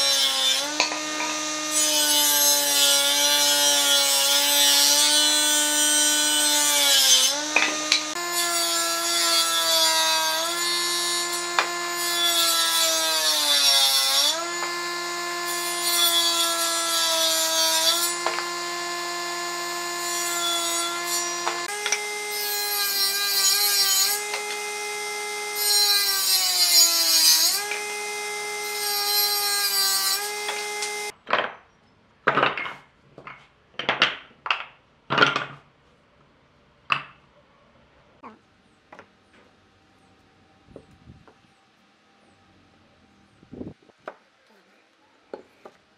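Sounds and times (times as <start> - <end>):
power tool motor whining: 0.0 - 31.2
saw cutting wood hiss: 5.1 - 31.1.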